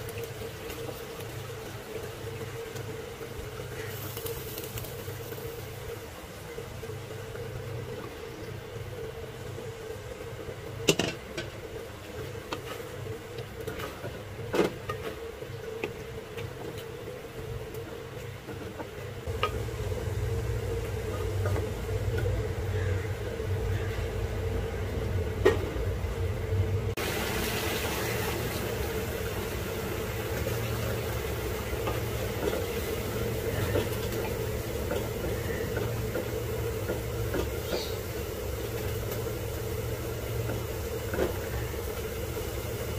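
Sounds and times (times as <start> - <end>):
food cooking in a pan: 0.0 - 18.1, 18.9 - 25.0, 26.9 - 42.9
low hum: 19.2 - 42.9.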